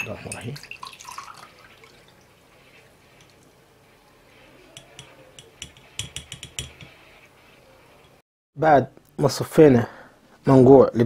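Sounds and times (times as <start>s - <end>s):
glass and metal strainer clinking: 0.0s - 1.5s.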